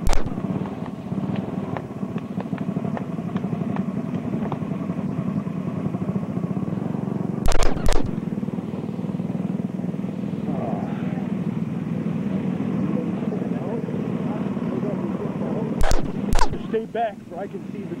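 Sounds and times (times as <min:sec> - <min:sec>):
loud sharp cracks: 0:00.0 - 0:04.6, 0:07.4 - 0:08.4, 0:15.8 - 0:16.7
go-kart engines buzzing: 0:00.0 - 0:18.0.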